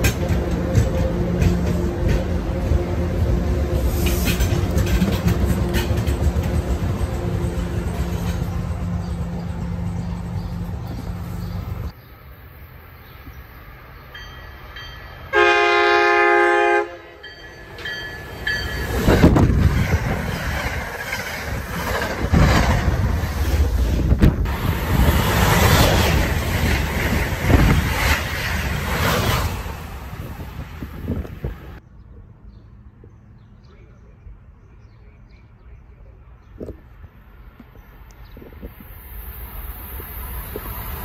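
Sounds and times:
train rushing past: 0:00.0 - 0:31.8, 0:38.6 - 0:41.0
train engine humming: 0:00.0 - 0:33.0, 0:36.9 - 0:41.0
wheels clacking over rails: 0:03.9 - 0:11.1
train horn chord: 0:15.3 - 0:17.4.

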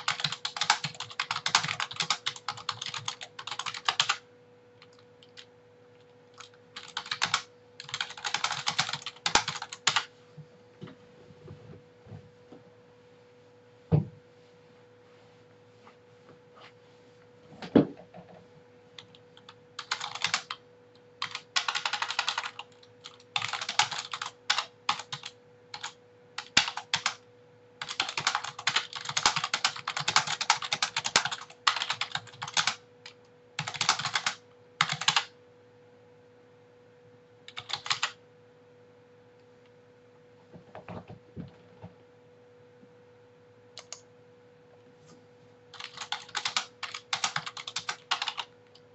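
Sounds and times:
computer keyboard typing: 0:00.0 - 0:04.2, 0:04.8 - 0:10.1, 0:19.0 - 0:20.6, 0:21.2 - 0:27.2, 0:27.8 - 0:35.3, 0:37.5 - 0:38.2, 0:43.8 - 0:44.0, 0:45.7 - 0:48.8
faint steady hum: 0:00.0 - 0:48.9.

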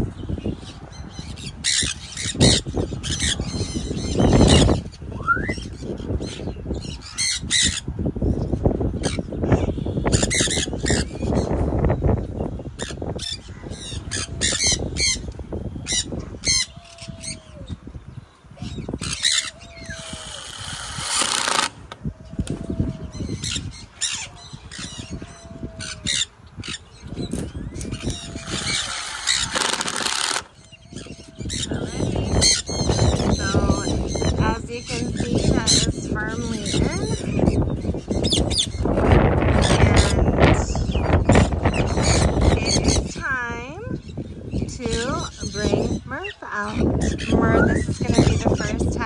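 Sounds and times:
parrots squawking: 0:01.2 - 0:07.9, 0:09.0 - 0:11.7, 0:12.8 - 0:17.8, 0:18.6 - 0:49.0
cordless drill driving screws: 0:20.0 - 0:21.8, 0:28.4 - 0:30.5.

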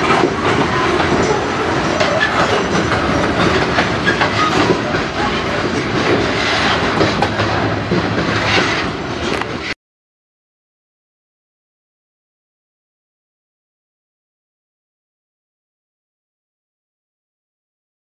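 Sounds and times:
train wheels rumbling: 0:00.0 - 0:09.8
wheels clacking over rail joints: 0:00.0 - 0:09.8.

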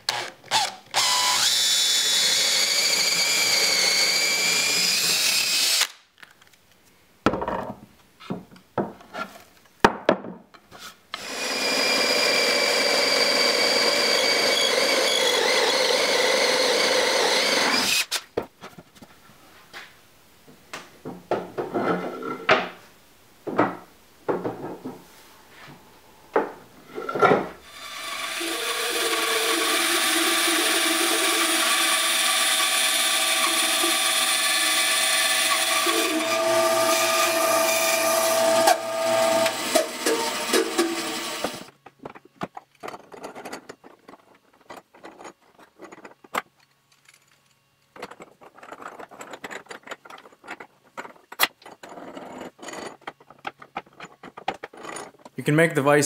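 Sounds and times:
cordless drill boring wood: 0:00.0 - 0:06.0, 0:11.2 - 0:18.2, 0:27.6 - 0:41.7
bandsaw running: 0:00.1 - 0:06.0, 0:11.2 - 0:18.2, 0:27.6 - 0:41.7.

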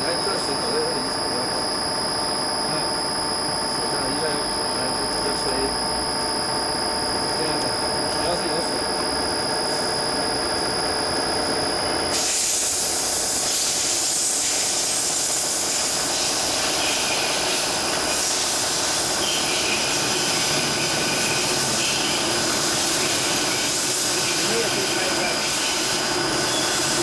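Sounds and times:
drilling machine whine: 0:00.0 - 0:27.0
coolant hiss: 0:12.1 - 0:27.0.

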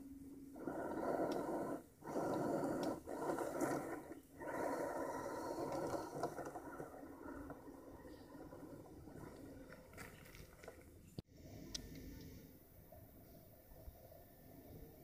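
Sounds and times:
toy car motor whirring: 0:00.0 - 0:11.0.

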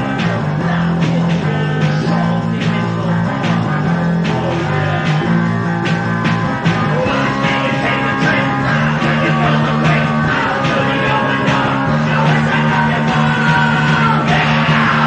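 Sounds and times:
rock band playing live: 0:00.0 - 0:15.0
steady drum beat: 0:00.0 - 0:15.0.

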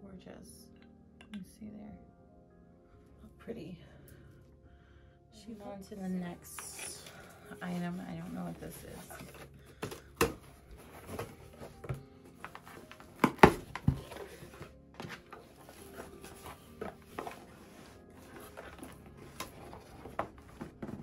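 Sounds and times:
cardboard rustling: 0:06.6 - 0:21.0.

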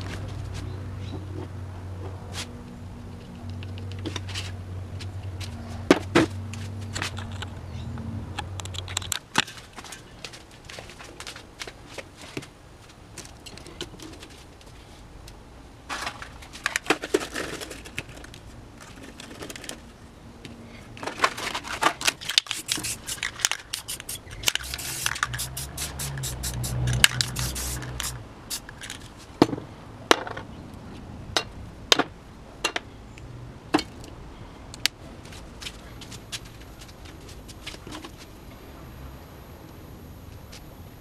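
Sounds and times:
spray paint hiss: 0:22.4 - 0:28.8.

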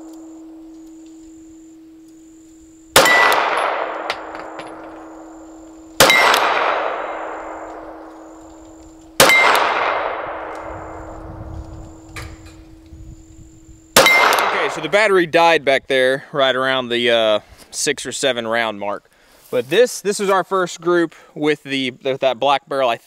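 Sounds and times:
pistol shots: 0:02.9 - 0:05.3, 0:06.0 - 0:08.5, 0:09.1 - 0:11.0, 0:14.0 - 0:15.0
bullet striking steel target ringing: 0:03.0 - 0:05.4, 0:06.0 - 0:08.4, 0:09.2 - 0:11.0, 0:14.0 - 0:15.0.

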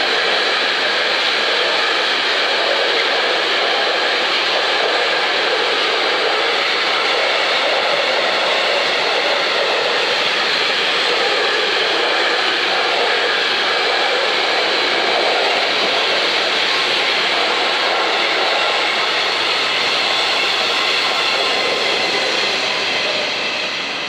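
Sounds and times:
train wheels rushing on rails: 0:00.0 - 0:24.0.

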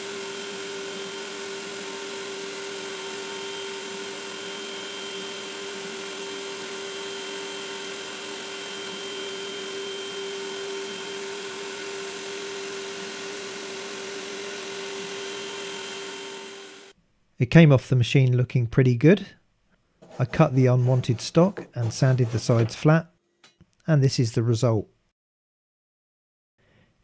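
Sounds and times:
cnc spindle whine: 0:00.0 - 0:16.9.

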